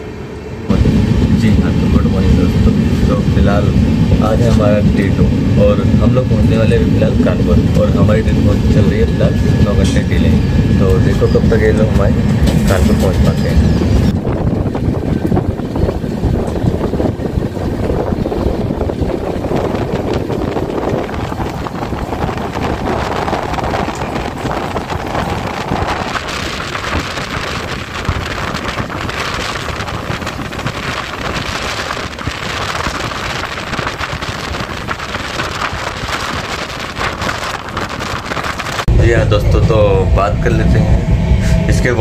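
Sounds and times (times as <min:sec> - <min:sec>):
air streaming past: 0:00.0 - 0:42.0
train wheels on track: 0:00.0 - 0:42.0
wind buffeting microphone: 0:00.7 - 0:42.0.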